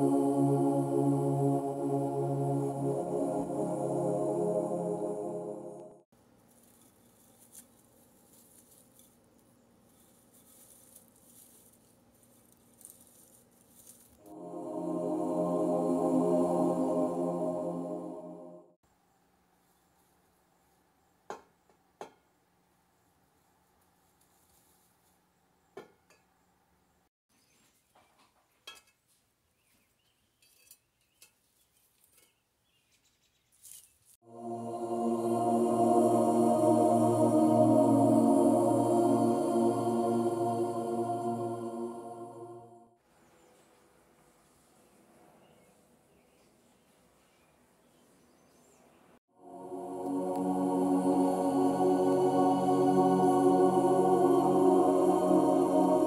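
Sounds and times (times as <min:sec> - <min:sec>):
background music: 0:00.0 - 0:06.0, 0:14.3 - 0:18.8, 0:34.3 - 0:42.9, 0:49.4 - 0:56.0
dried herb stalks rustling: 0:06.3 - 0:14.3, 0:33.5 - 0:34.2.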